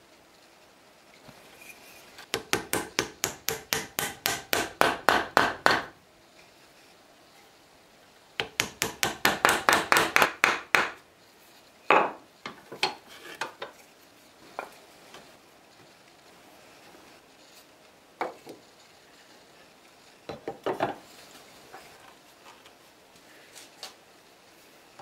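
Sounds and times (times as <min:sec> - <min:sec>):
wooden mallet tapping dowels: 0:02.3 - 0:05.9, 0:08.4 - 0:11.0.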